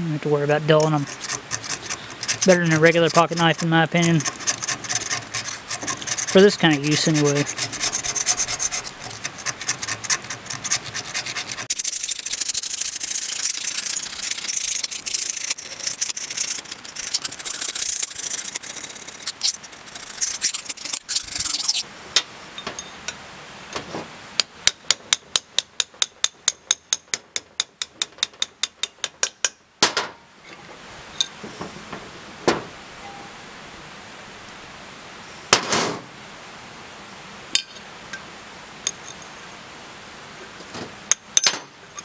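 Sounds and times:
knife scraping paint off metal: 0.7 - 21.8.

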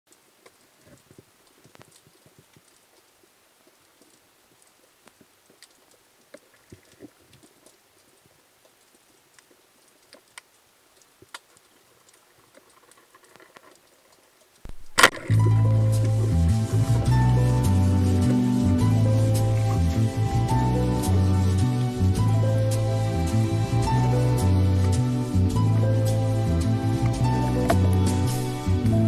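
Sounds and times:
faint scattered clicks: 0.1 - 16.4
low steady hiss: 0.1 - 29.0.

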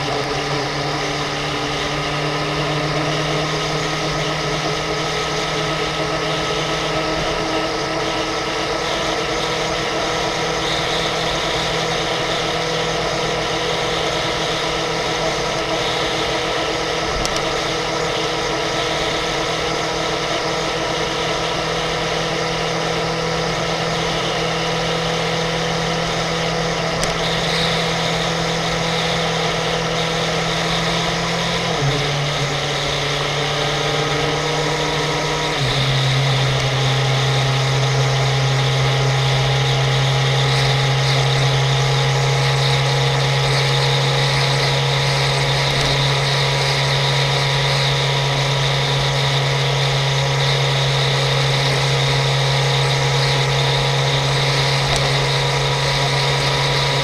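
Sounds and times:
motorcycle engine cruising: 0.0 - 57.0.

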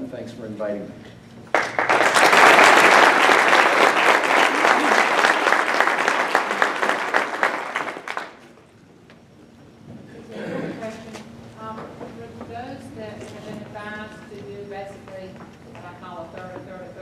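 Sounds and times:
audience applauding: 1.5 - 8.6.

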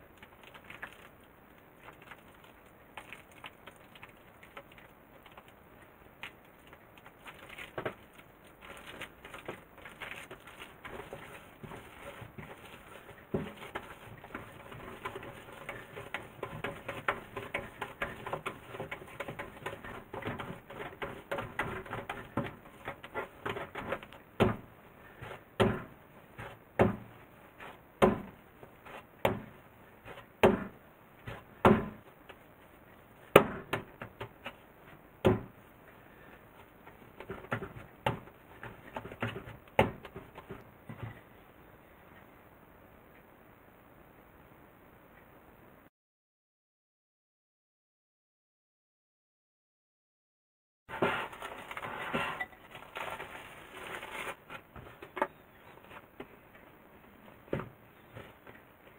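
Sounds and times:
dough squelching as kneaded: 0.0 - 41.2
dough thumping on wooden board: 25.6 - 27.1, 28.0 - 28.4, 29.2 - 29.6, 30.4 - 32.0, 35.2 - 35.6.

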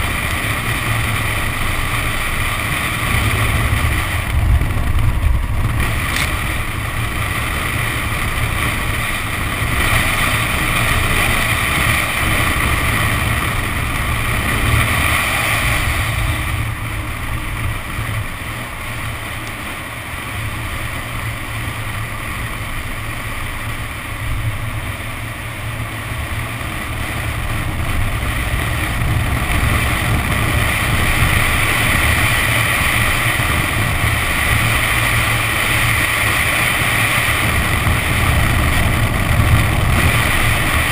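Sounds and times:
car engine revving: 0.0 - 19.8
wind rush on microphone: 0.0 - 40.9.

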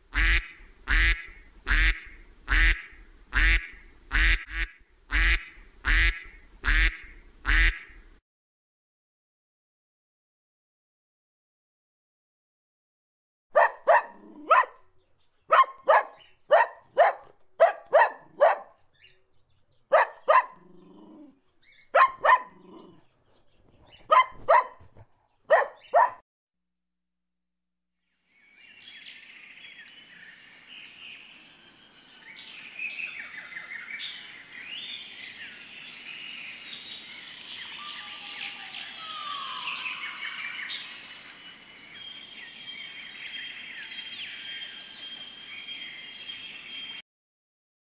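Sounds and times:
geese honking: 0.1 - 8.0
guineafowl chattering: 0.1 - 8.0.

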